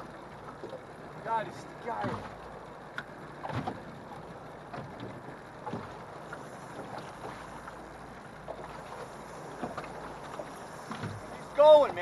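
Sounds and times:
waves slapping a boat hull: 0:00.0 - 0:12.0
water wash: 0:03.0 - 0:12.0.

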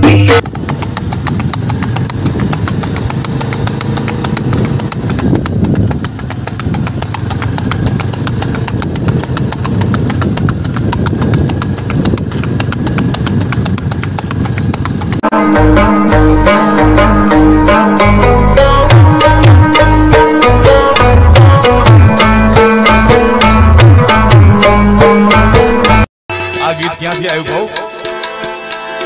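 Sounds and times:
horse hooves on pavement: 0:00.0 - 0:15.4
low engine hum: 0:00.0 - 0:26.0.

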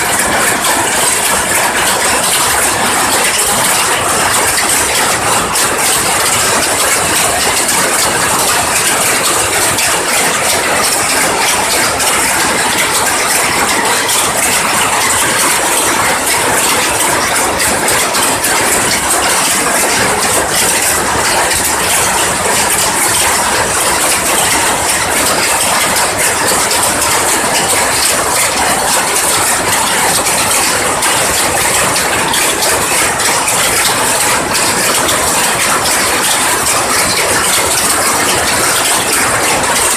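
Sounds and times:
loom clattering: 0:00.0 - 0:39.9.

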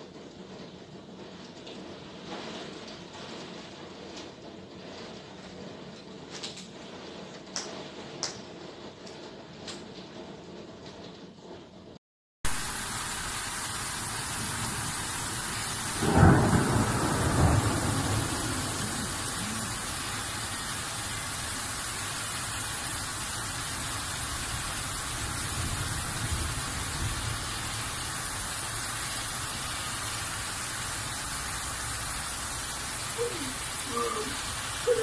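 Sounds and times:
heavy rain pouring: 0:00.0 - 0:11.6, 0:12.5 - 0:35.0
thunder clap and rumble: 0:13.4 - 0:35.0.

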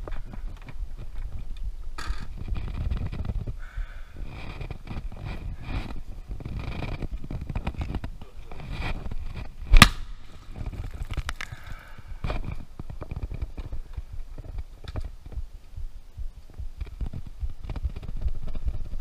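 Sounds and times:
low rumbling handling noise: 0:00.0 - 0:19.0
sharp gunshot: 0:09.7 - 0:10.3.

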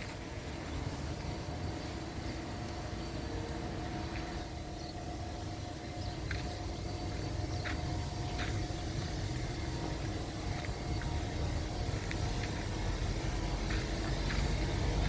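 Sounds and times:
faint hum: 0:00.0 - 0:15.0
low outdoor rumble: 0:00.0 - 0:15.0.

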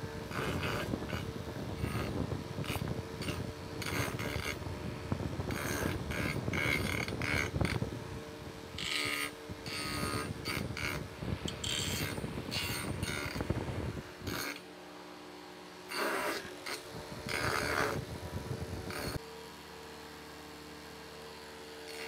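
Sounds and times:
wood grinding on disc: 0:00.0 - 0:08.0, 0:08.7 - 0:14.7, 0:15.9 - 0:19.2
electric motor humming: 0:00.0 - 0:22.0.

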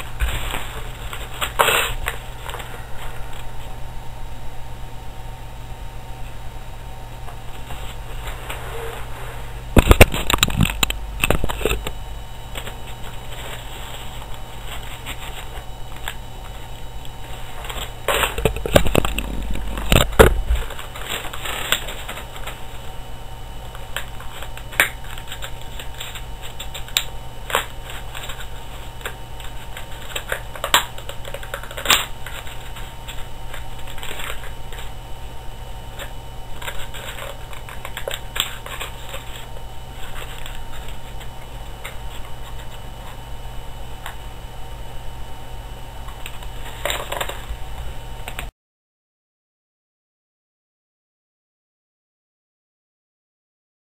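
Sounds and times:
paper crinkling and rustling: 0:00.0 - 0:03.7, 0:12.5 - 0:22.9, 0:23.7 - 0:35.0, 0:35.9 - 0:43.2.

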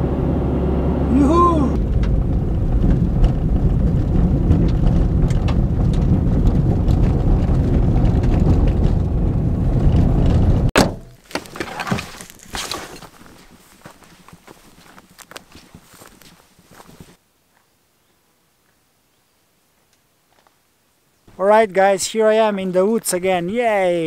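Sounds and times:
car driving on gravel: 0:00.0 - 0:17.2
engine and tyres rumbling: 0:00.0 - 0:17.2.

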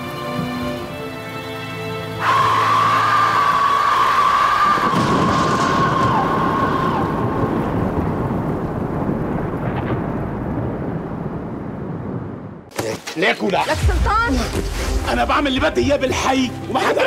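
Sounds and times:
heavy rain: 0:00.0 - 0:17.0
rolling thunder: 0:04.3 - 0:12.7.

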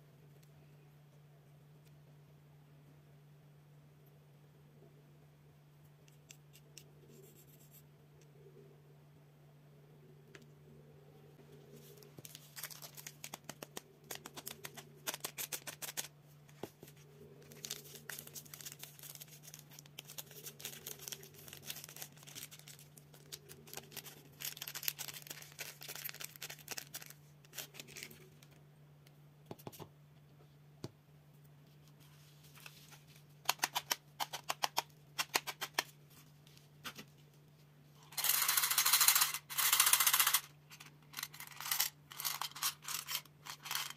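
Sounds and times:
plastic wrapper crinkling: 0:12.0 - 0:16.1, 0:17.4 - 0:28.5.

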